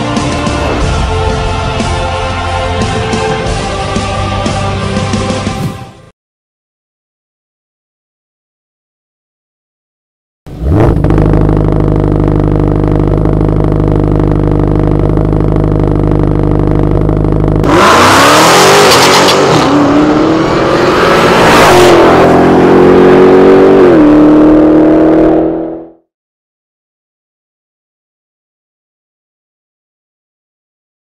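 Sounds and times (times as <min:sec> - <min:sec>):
car engine revving: 0:10.5 - 0:26.0.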